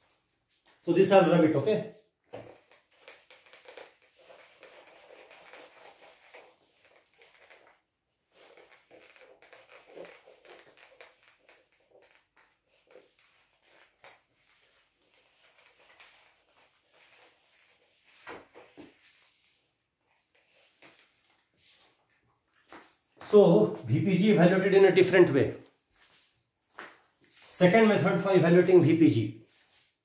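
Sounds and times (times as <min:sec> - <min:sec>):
duster swishing on whiteboard: 0:01.9 - 0:23.4, 0:29.4 - 0:30.0.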